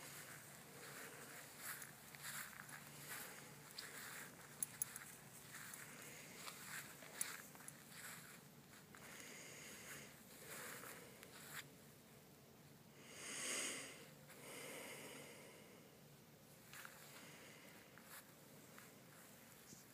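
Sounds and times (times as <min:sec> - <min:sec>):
faint rustles: 0:00.0 - 0:11.8, 0:16.5 - 0:19.9.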